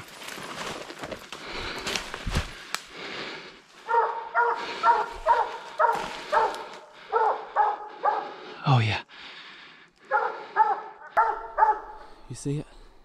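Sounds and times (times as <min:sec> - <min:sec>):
brush rustling: 0:00.0 - 0:02.9, 0:04.6 - 0:06.9
twigs snapping underfoot: 0:00.0 - 0:03.0, 0:05.2 - 0:06.8
hounds barking: 0:03.8 - 0:08.5, 0:10.0 - 0:12.3.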